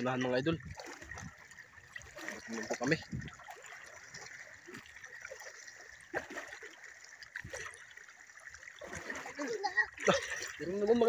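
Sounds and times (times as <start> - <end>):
splashing footsteps in water: 0.0 - 8.0
water trickling: 0.0 - 11.0.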